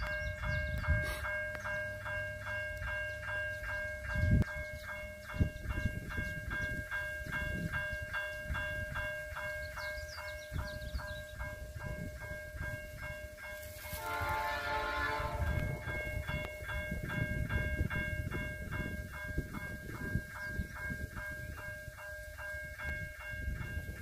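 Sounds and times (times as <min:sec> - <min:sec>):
wind on microphone: 0:00.0 - 0:01.3, 0:03.9 - 0:24.0
distant diesel train rumble: 0:00.0 - 0:24.0
pulsing high tone: 0:13.8 - 0:16.5.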